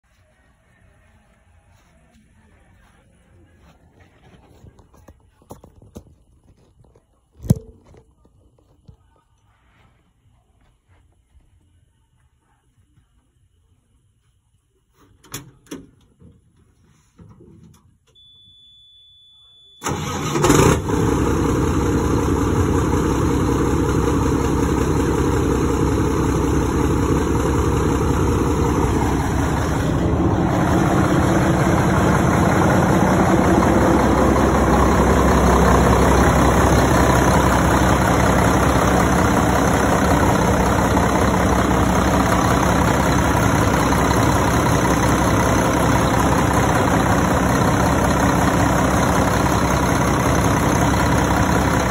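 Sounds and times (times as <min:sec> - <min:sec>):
diesel truck engine starting and idling: 0:19.8 - 0:51.9.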